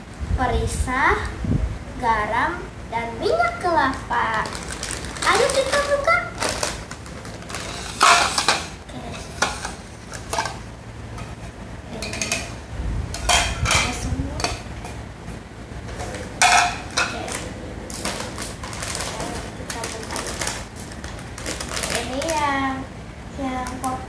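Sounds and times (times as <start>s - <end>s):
plastic snack bags rustling: 4.2s - 10.6s, 15.9s - 22.6s
plastic plates clattering on tiles: 4.4s - 10.6s, 13.2s - 14.6s, 15.9s - 22.3s.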